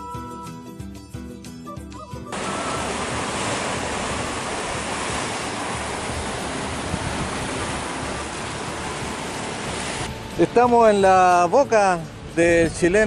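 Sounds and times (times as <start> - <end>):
waves breaking on shore: 2.3 - 10.8.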